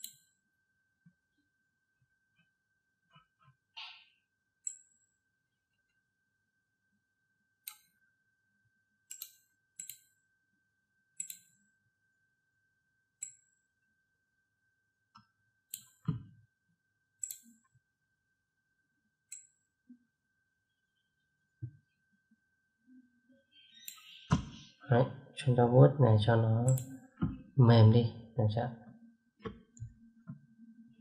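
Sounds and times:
computer mouse clicking: 0:07.6 - 0:07.9, 0:09.1 - 0:10.1, 0:11.2 - 0:11.6, 0:17.2 - 0:17.6, 0:23.7 - 0:24.6.

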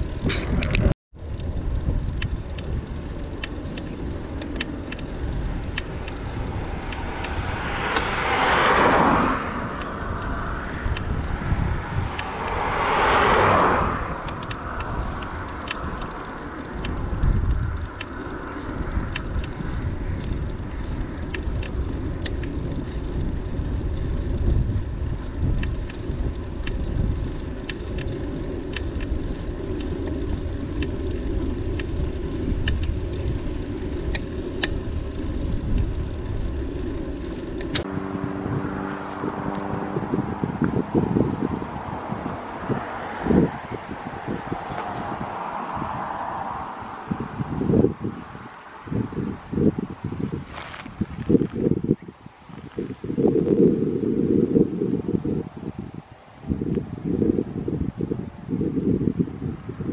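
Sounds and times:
vehicles passing close by: 0:00.0 - 0:59.9
wind on microphone: 0:00.0 - 0:59.9.

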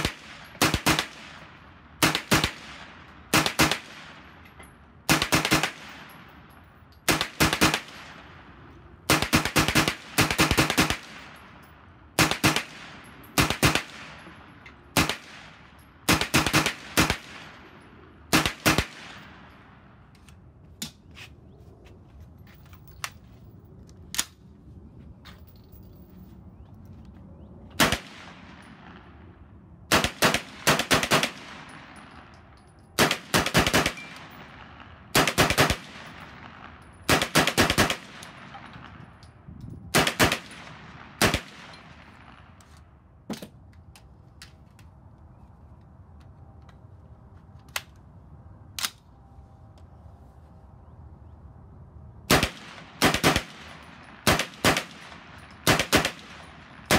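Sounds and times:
carbine gunfire: 0:00.0 - 0:01.4, 0:02.0 - 0:04.3, 0:05.1 - 0:06.1, 0:07.1 - 0:08.2, 0:09.1 - 0:11.4, 0:12.2 - 0:14.2, 0:14.9 - 0:17.6, 0:29.9 - 0:32.0, 0:33.0 - 0:39.0, 0:39.9 - 0:42.4, 0:52.3 - 0:56.9.

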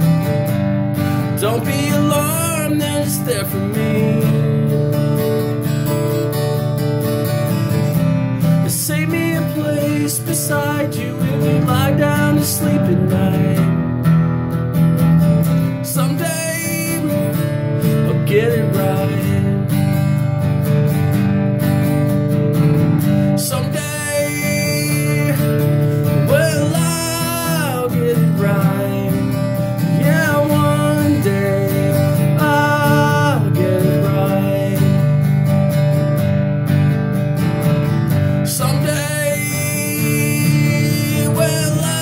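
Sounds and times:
acoustic guitar strumming: 0:00.0 - 0:42.0
man singing: 0:01.1 - 0:06.2, 0:07.7 - 0:13.9, 0:15.5 - 0:20.3, 0:23.3 - 0:35.6, 0:38.2 - 0:42.0.

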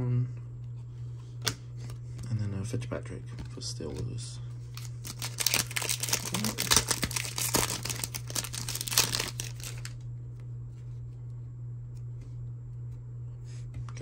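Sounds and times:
steady low hum: 0:00.0 - 0:14.0
foil wrapper tearing and crinkling: 0:04.7 - 0:10.0.

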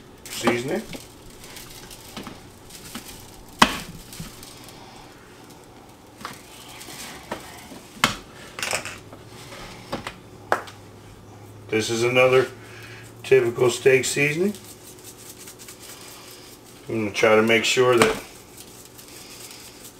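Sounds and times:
shakers being shaken: 0:13.5 - 0:16.9, 0:18.2 - 0:19.9.

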